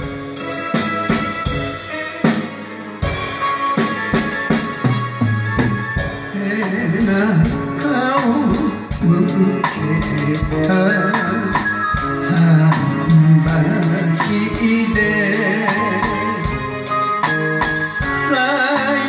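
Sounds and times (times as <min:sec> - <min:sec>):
drum kit playing a steady beat: 0:00.0 - 0:19.0
karaoke backing track: 0:00.0 - 0:19.0.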